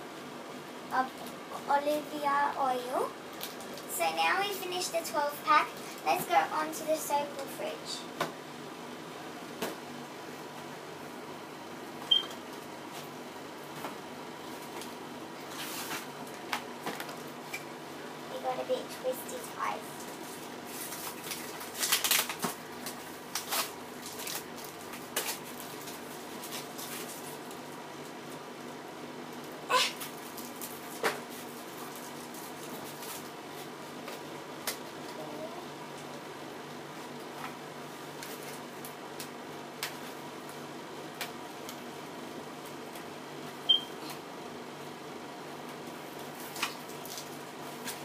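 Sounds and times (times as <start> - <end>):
packaging rustling and scraping: 15.5 - 16.2, 20.0 - 27.6, 30.0 - 34.2.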